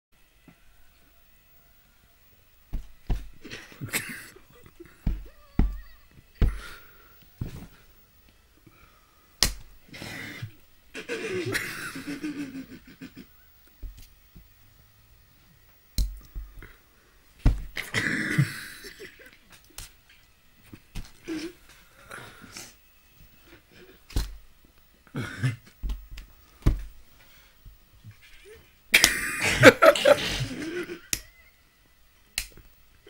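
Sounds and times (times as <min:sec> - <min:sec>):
hand slaps on leg: 0:02.7 - 0:03.4, 0:09.4 - 0:09.7, 0:32.4 - 0:32.6.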